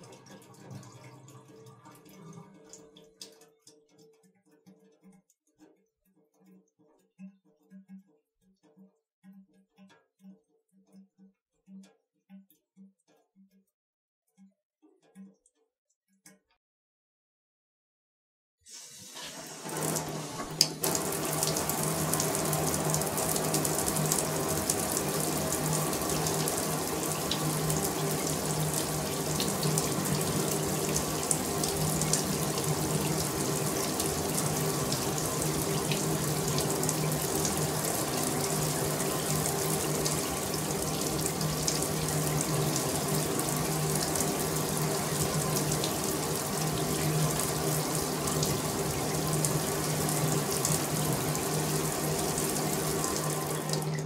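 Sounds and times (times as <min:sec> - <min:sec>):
shower water running: 0:18.7 - 0:54.0
faint steady hum: 0:19.7 - 0:54.0.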